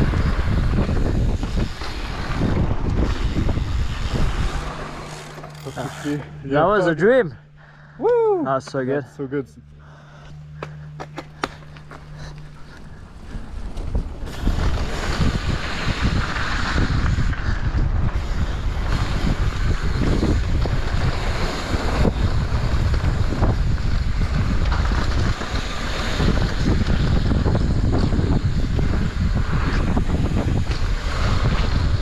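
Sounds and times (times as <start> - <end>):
wind rushing over microphone: 0.0 - 5.2, 12.6 - 32.0.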